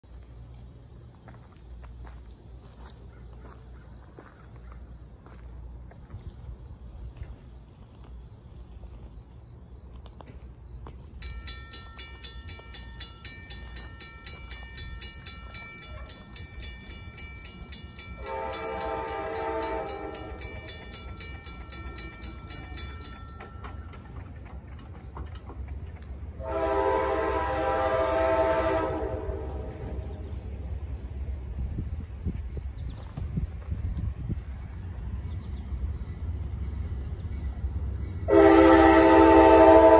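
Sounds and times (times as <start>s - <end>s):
crossing warning bell dinging: 10.8s - 32.3s, 35.6s - 39.9s
locomotive air horn blasts: 18.2s - 20.4s, 26.4s - 30.2s, 38.3s - 39.9s.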